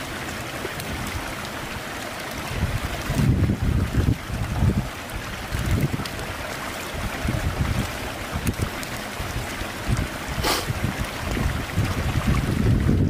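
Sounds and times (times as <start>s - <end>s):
wind rumble on microphone: 0.6s - 13.0s
brief hiss: 10.4s - 10.7s.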